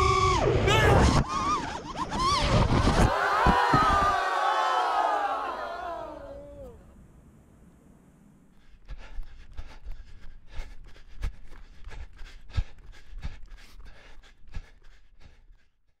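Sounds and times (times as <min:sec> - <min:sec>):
hard breathing: 0:08.5 - 0:16.0.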